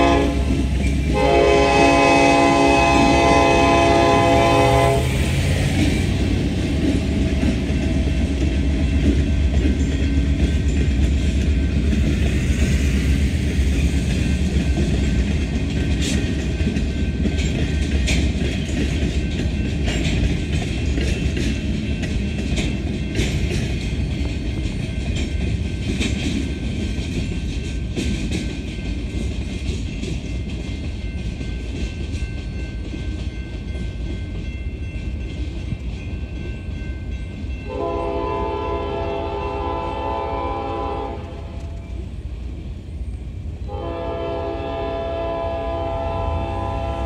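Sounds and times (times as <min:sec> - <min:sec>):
locomotive air horn blasts: 0:00.0 - 0:05.3, 0:37.7 - 0:41.8, 0:43.7 - 0:47.0
freight train wheels clicking: 0:00.0 - 0:47.0.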